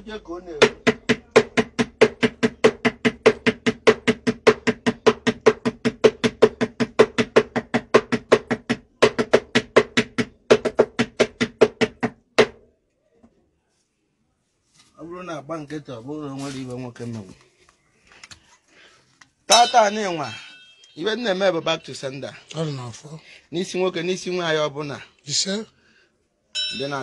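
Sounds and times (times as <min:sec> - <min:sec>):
drum beaten in fast rhythm: 0:00.6 - 0:12.5.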